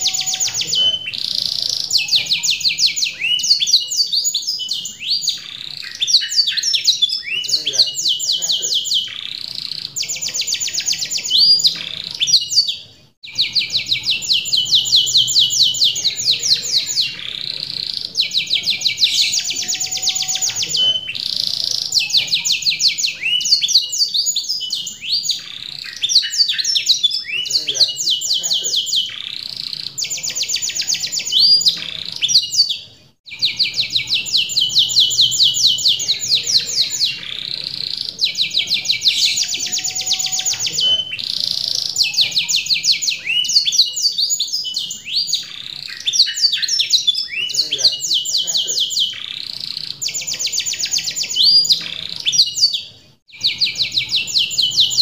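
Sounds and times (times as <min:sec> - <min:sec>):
canary singing: 0:00.0 - 0:55.0.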